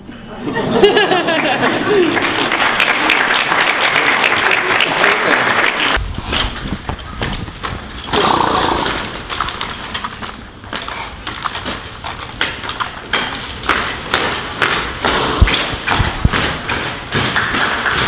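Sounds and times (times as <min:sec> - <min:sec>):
applause: 0:01.2 - 0:06.0
puppet hooves knocking: 0:09.2 - 0:18.0
people voicing horse breaths: 0:10.7 - 0:12.3, 0:14.8 - 0:16.2.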